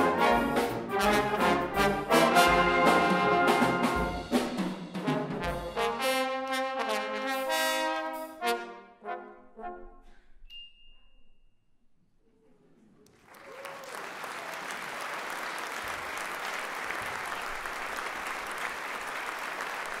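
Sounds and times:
brass chord: 0:00.0 - 0:10.1
audience applauding: 0:13.1 - 0:20.0.

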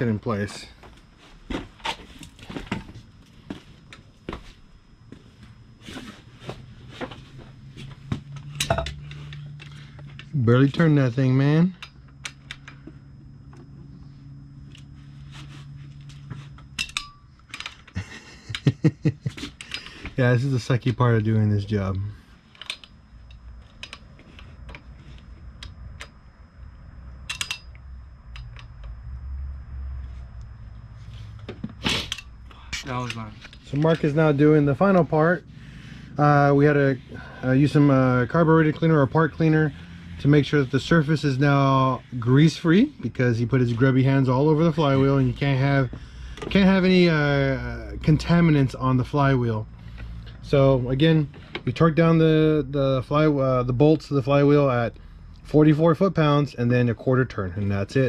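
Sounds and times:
low steady hum: 0:00.0 - 0:58.0
shuffling steps: 0:00.6 - 0:08.3
hand tools clicking and knocking: 0:27.3 - 0:27.8.

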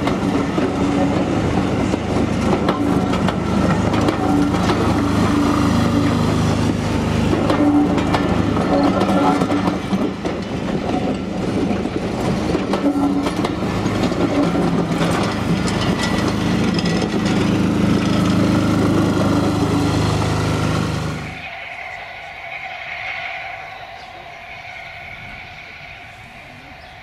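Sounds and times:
wheels clicking over rail joints: 0:00.0 - 0:21.4
train wheels rumbling on rails: 0:00.0 - 0:27.0.

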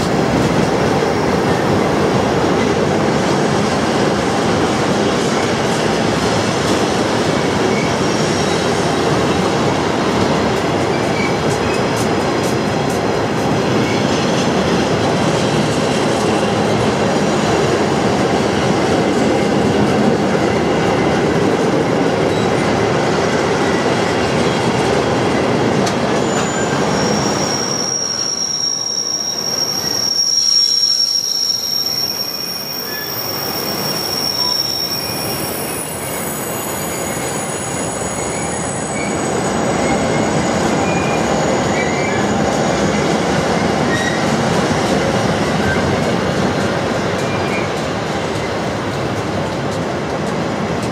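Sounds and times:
train wheels rumbling on rail: 0:00.0 - 0:50.9
high steady squeal: 0:26.2 - 0:42.4.

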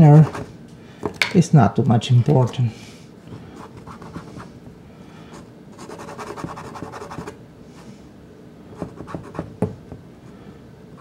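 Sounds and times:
pastel stick scratching on card: 0:05.8 - 0:07.4, 0:08.8 - 0:09.5.

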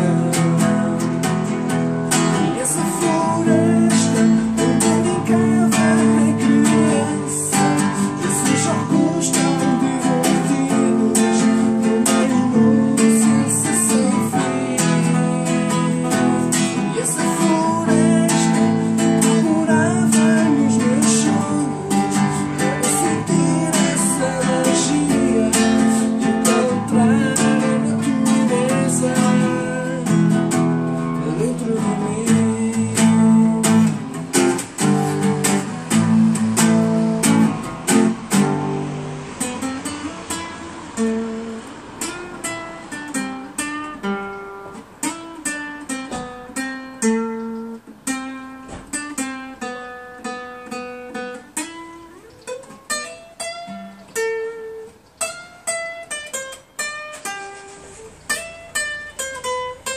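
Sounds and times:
man singing: 0:00.0 - 0:34.8
classical guitar strumming: 0:00.0 - 0:59.9.

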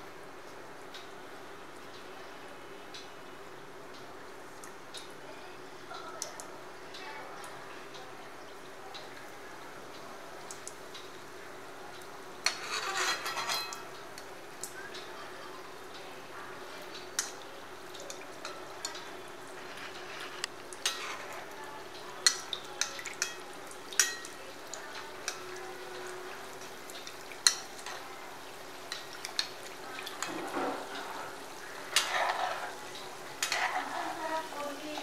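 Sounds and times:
oil sizzling with pops: 0:00.0 - 0:02.1, 0:02.8 - 0:05.2, 0:05.8 - 0:35.0
metal spoon tapping a pan: 0:12.4 - 0:13.8, 0:22.2 - 0:24.4, 0:27.0 - 0:28.0.

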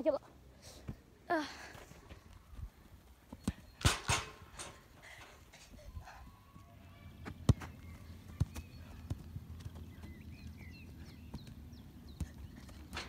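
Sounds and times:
football kicked and bouncing: 0:03.3 - 0:04.4, 0:07.2 - 0:13.0
faint bird chirps: 0:05.9 - 0:12.9.

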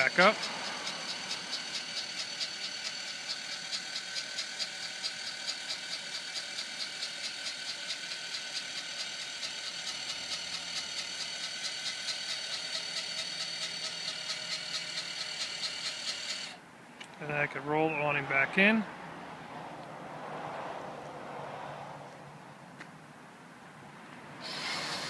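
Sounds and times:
electric motor whirring: 0:00.0 - 0:16.6, 0:24.4 - 0:25.0
rapid regular ticking: 0:00.0 - 0:16.6.

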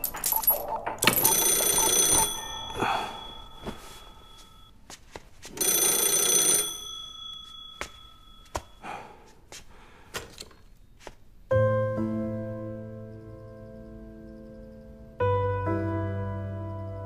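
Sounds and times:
telephone bell ringing: 0:00.0 - 0:04.8, 0:05.5 - 0:08.8.

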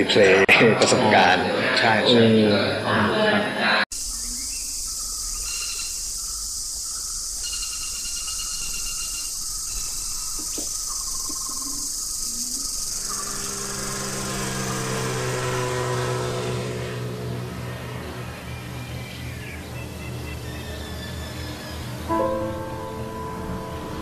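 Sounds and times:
insects chorus: 0:03.9 - 0:24.0
low sustained drone: 0:10.9 - 0:24.0.

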